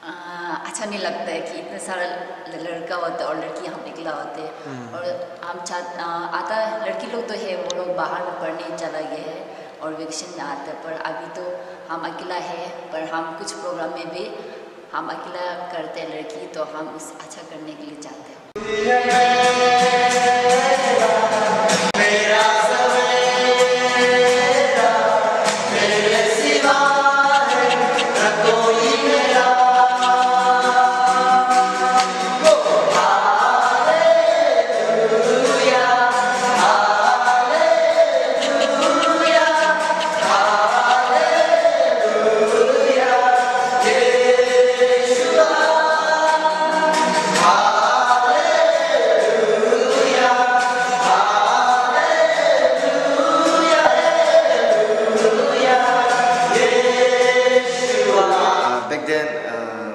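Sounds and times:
people singing worship song: 0:18.6 - 0:58.8.

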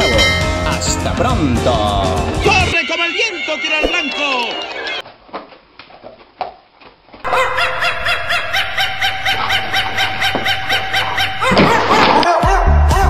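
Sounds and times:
rapid high-pitched laughter: 0:07.3 - 0:12.4.

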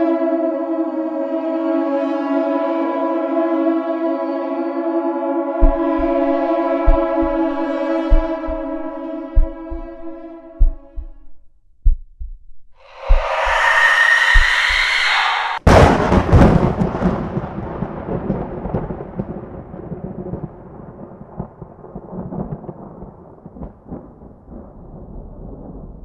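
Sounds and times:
music sting with low thumps: 0:05.6 - 0:11.3
thunder crack and rumble: 0:15.6 - 0:26.0.

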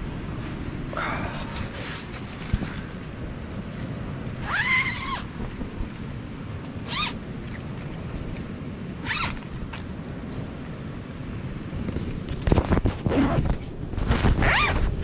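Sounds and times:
tent zipper being pulled: 0:01.3 - 0:03.0, 0:04.4 - 0:05.7, 0:06.8 - 0:07.7, 0:09.0 - 0:09.7, 0:12.5 - 0:15.0.

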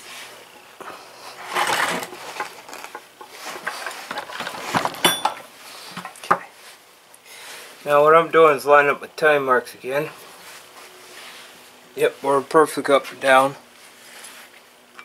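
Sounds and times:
metal parts clinking and rattling: 0:03.6 - 0:05.4.

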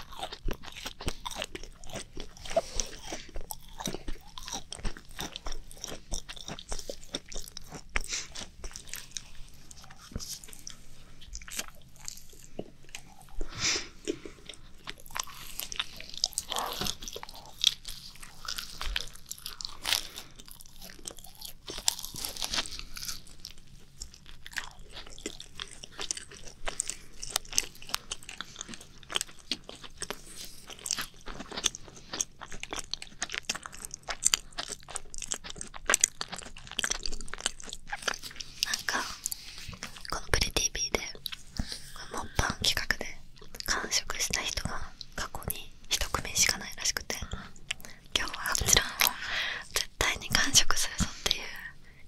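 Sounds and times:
soft chewing: 0:00.0 - 0:52.0
macaron shells crunching: 0:14.8 - 0:38.6.

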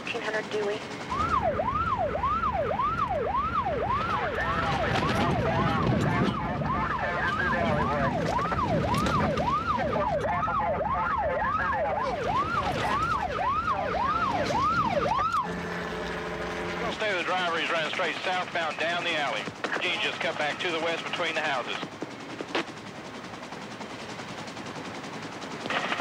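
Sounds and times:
police siren yelping: 0:00.6 - 0:20.5.

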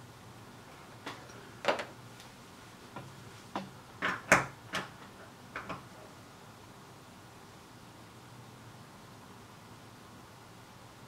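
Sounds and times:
small clicks and knocks: 0:03.0 - 0:05.9.

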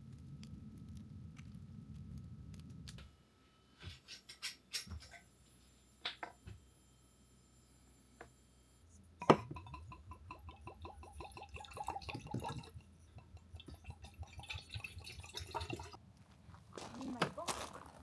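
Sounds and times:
glass clink: 0:09.2 - 0:12.7
liquid glugging from a bottle: 0:09.2 - 0:16.0.

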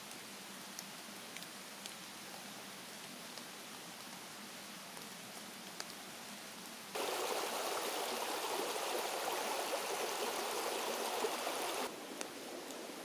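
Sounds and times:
quiet steady hiss: 0:00.0 - 0:13.0
mountain stream splashing: 0:07.0 - 0:12.9.

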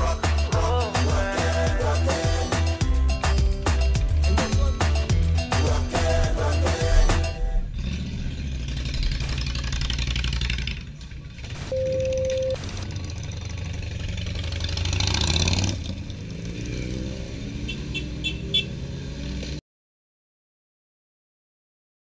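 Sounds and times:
motorcycle passing: 0:07.5 - 0:11.7, 0:12.6 - 0:19.6
motorcycle engines idling: 0:07.7 - 0:16.4
steady beep: 0:11.7 - 0:12.7.

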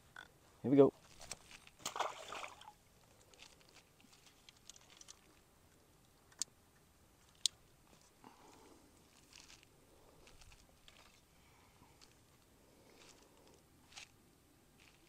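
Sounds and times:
fishing reel handling rustle: 0:01.0 - 0:01.8, 0:03.1 - 0:05.4, 0:07.2 - 0:11.3, 0:12.0 - 0:12.2, 0:12.8 - 0:14.2, 0:14.8 - 0:15.0.

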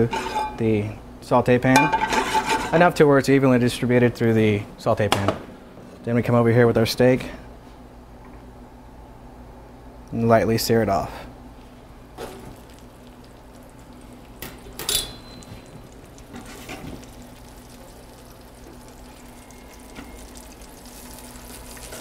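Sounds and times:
steak sizzling in a pan: 0:15.4 - 0:22.0.

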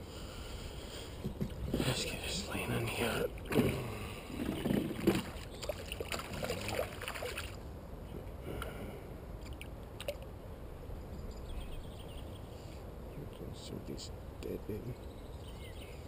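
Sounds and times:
water splashing and sloshing: 0:01.2 - 0:07.7, 0:09.4 - 0:10.3.

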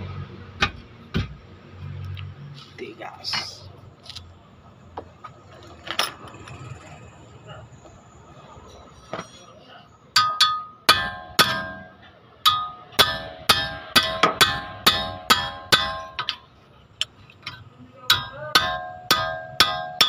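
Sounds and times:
wrench striking metal with ring: 0:09.0 - 0:16.5, 0:17.5 - 0:20.0.

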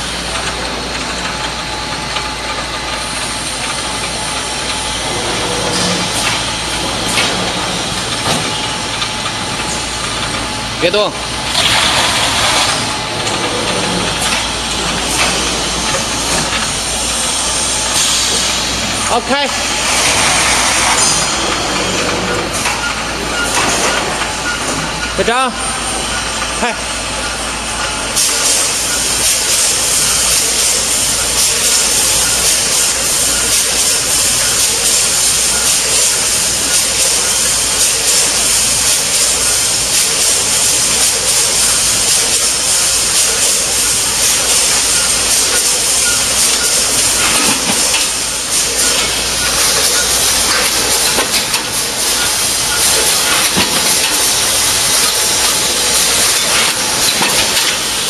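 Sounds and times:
packing machine din: 0:00.0 - 0:58.0.

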